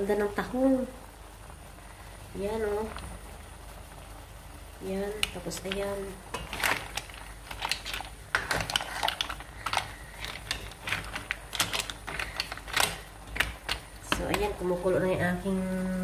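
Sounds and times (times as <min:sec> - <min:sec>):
hard objects clicking and knocking: 0:05.2 - 0:14.6.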